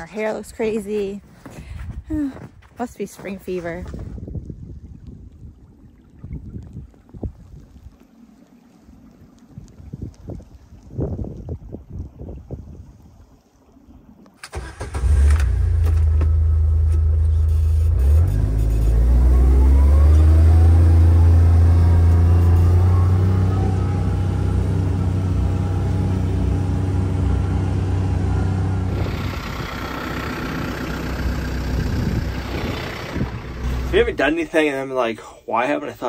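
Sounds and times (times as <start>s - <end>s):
diesel tractor engine running: 14.4s - 34.4s
utility vehicle engine accelerating: 14.5s - 34.3s.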